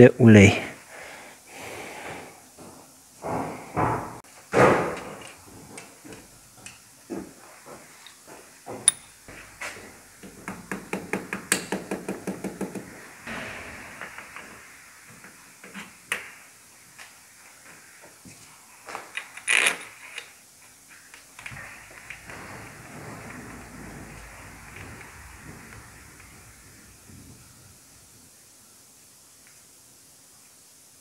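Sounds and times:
hand tool clicks and knocks: 0:08.8 - 0:09.2, 0:10.2 - 0:12.8
brief hiss: 0:12.9 - 0:17.0.

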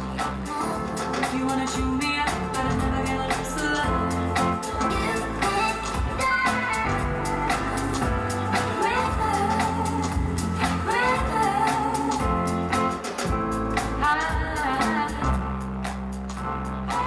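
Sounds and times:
person singing: 0:00.0 - 0:13.2
drum beat and bass: 0:00.0 - 0:17.0.

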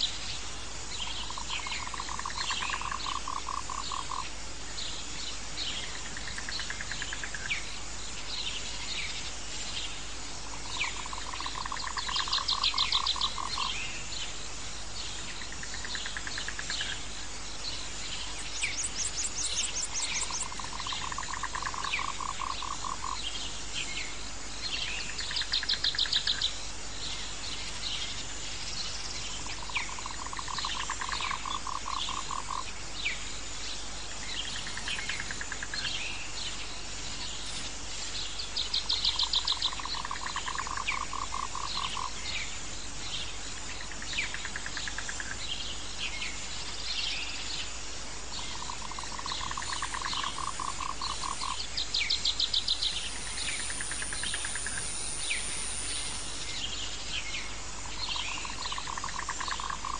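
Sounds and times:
animal chirps: 0:48.5 - 0:51.6.

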